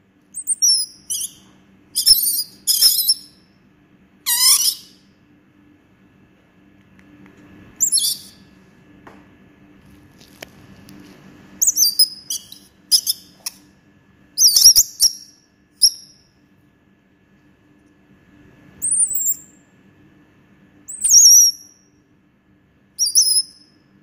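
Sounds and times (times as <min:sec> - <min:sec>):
faint low hum: 0:00.0 - 0:24.0
monkey squeaky calls: 0:00.4 - 0:01.4, 0:02.0 - 0:03.3, 0:04.3 - 0:05.0, 0:07.8 - 0:08.4, 0:11.6 - 0:13.3.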